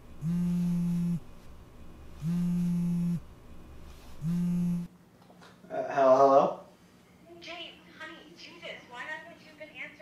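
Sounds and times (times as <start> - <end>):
smartphone buzzing on wooden desk: 0.2 - 1.4, 2.2 - 3.3, 4.2 - 4.9.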